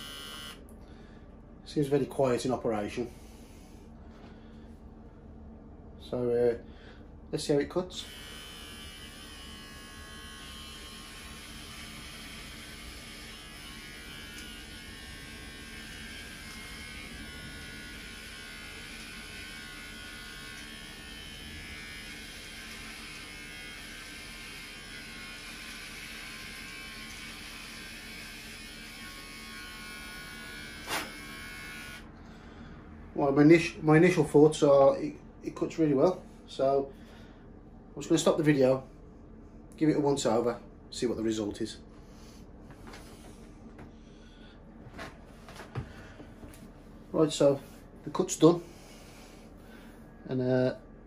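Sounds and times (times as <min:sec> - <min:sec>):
hair clippers buzzing: 0:00.0 - 0:00.7, 0:07.8 - 0:32.1.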